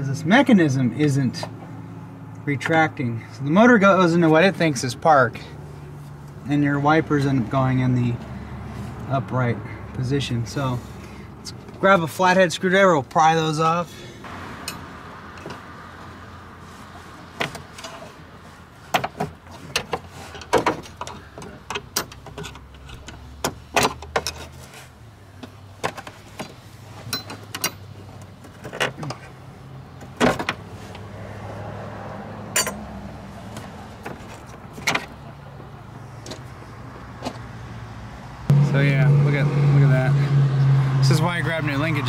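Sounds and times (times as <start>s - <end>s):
steady low hum: 38.5s - 41.2s.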